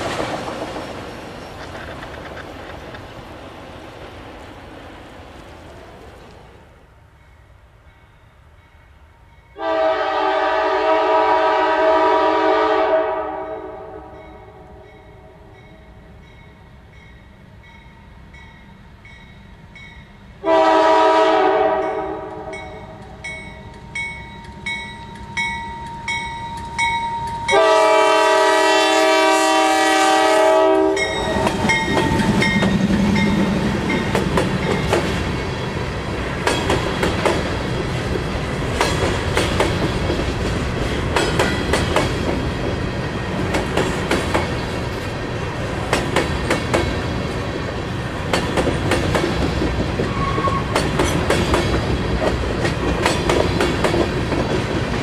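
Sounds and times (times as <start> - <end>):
train wheels clicking over rail joints: 0.0 - 4.4, 31.0 - 55.0
locomotive air horn blast: 9.6 - 14.2, 20.4 - 23.0, 27.5 - 31.7
locomotive bell ringing: 14.1 - 20.3, 21.8 - 27.9, 30.9 - 35.7.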